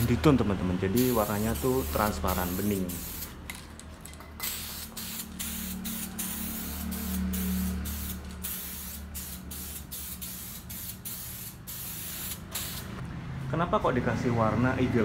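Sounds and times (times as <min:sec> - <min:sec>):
spray can hissing bursts: 0:01.0 - 0:03.4, 0:04.4 - 0:13.0.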